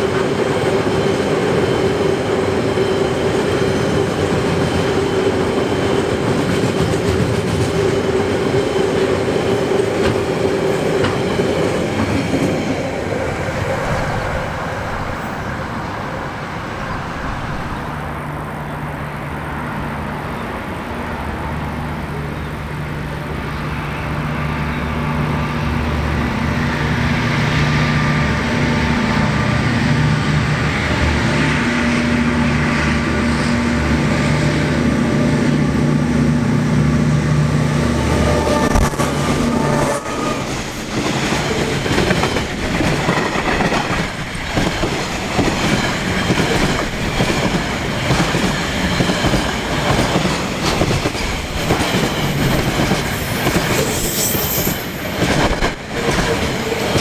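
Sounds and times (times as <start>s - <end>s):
train engine drone: 0.0s - 57.0s
train wheels clicking on rail joints: 3.2s - 15.4s, 38.4s - 57.0s.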